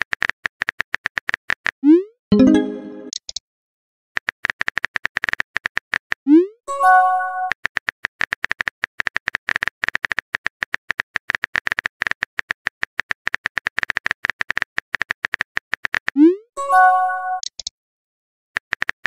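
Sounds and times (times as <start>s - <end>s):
keyboard typing clicks: 17.4s - 17.7s.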